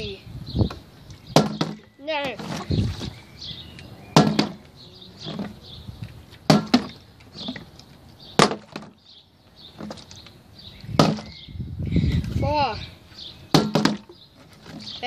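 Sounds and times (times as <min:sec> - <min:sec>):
plastic bottle knocking on wood: 0:04.2 - 0:04.6, 0:13.6 - 0:14.1.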